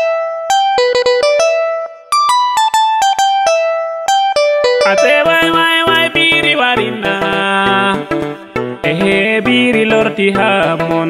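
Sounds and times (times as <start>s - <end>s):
plucked string melody: 0.0s - 11.0s.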